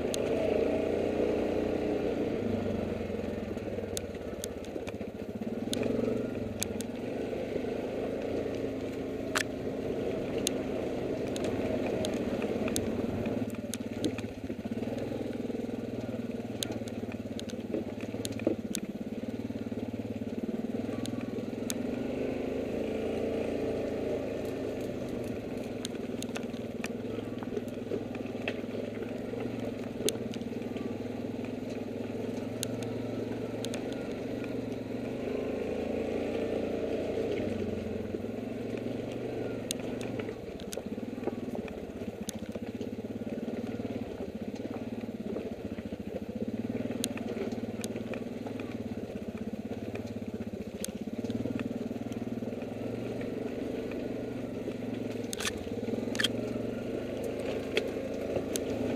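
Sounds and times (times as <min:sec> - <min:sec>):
atv engine running: 0:00.0 - 0:58.9
clicks and knocks over loose rock: 0:54.7 - 0:58.9.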